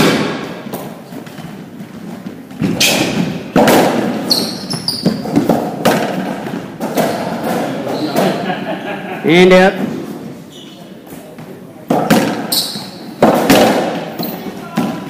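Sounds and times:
sneaker squeaks on court: 4.1 - 5.5, 7.8 - 8.3, 10.5 - 11.0, 12.2 - 13.2
rubber ball cracking off walls: 13.2 - 14.1.

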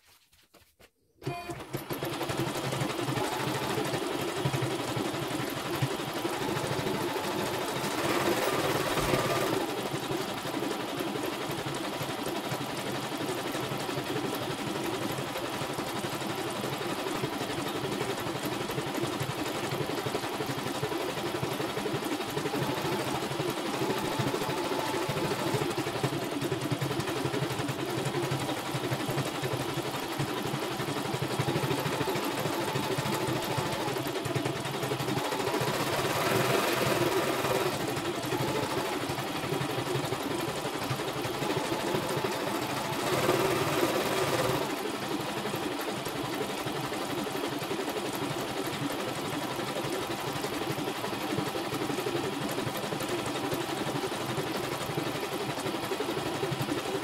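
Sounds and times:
embroidery machine needle chatter: 40.8 - 44.7.

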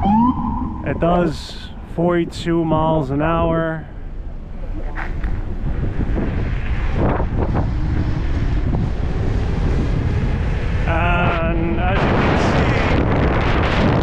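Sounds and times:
short pitched sound: 0.0 - 2.0
wind rushing over microphone: 0.0 - 14.0.

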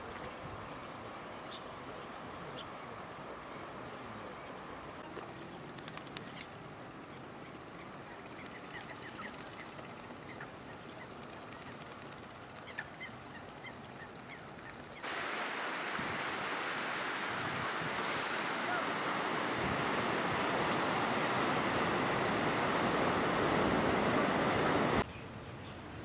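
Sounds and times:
surf breaking over rocks: 15.0 - 25.0.

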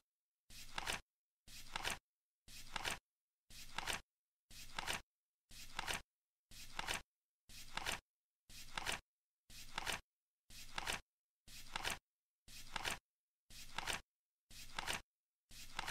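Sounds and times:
flip clock card flipping: 1.6 - 2.0, 2.6 - 3.0, 3.7 - 4.0, 8.7 - 9.0, 11.7 - 12.0.

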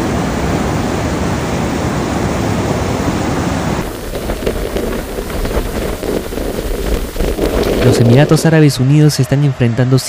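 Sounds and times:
heavy rain rushing: 2.4 - 8.6
rain drops pattering: 3.8 - 8.5.

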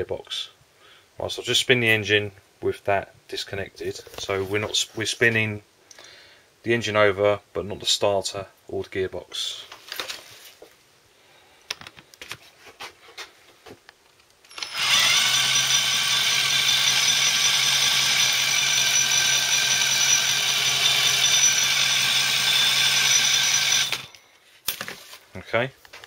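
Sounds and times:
electric drill whine: 14.5 - 24.2.

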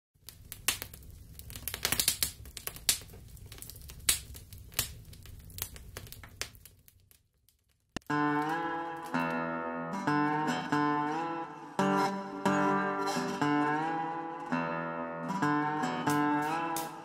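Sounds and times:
fire crackling and popping: 0.2 - 9.4, 16.0 - 17.0
acoustic guitar music: 8.0 - 17.0.

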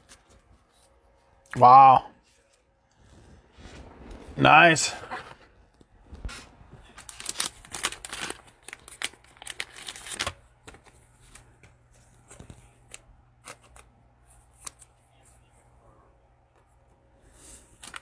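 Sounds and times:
plastic wrapper crinkling and tearing: 6.2 - 11.5, 17.8 - 18.0.

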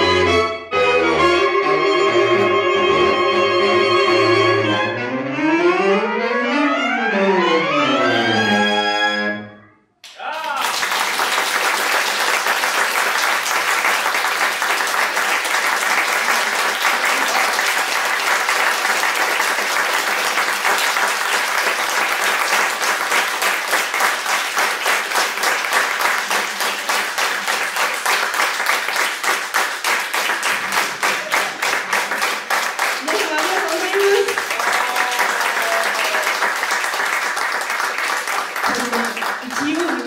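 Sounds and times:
audience applauding: 10.0 - 40.0.

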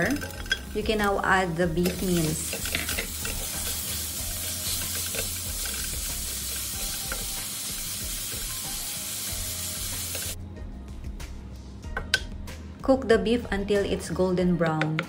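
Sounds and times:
meat sizzling in a frying pan: 0.0 - 10.4.

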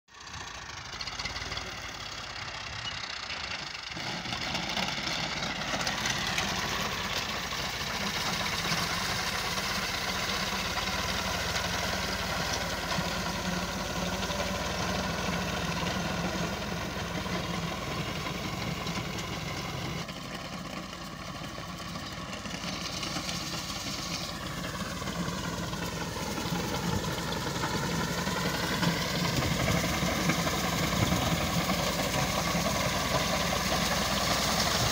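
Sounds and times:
tractor diesel engine under load: 0.1 - 34.9.

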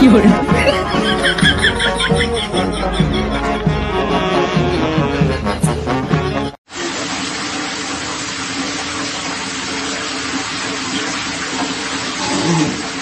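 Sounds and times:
water running into a bathtub: 6.6 - 13.0.

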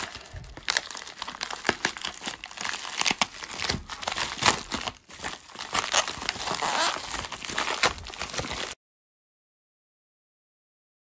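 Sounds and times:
plastic and bubble wrap crinkling: 0.0 - 8.8.

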